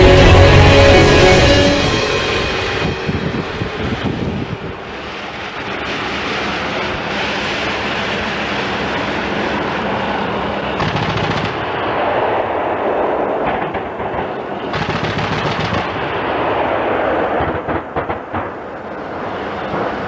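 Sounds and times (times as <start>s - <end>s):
rapid automatic gunfire: 10.8s - 11.7s, 14.7s - 16.0s.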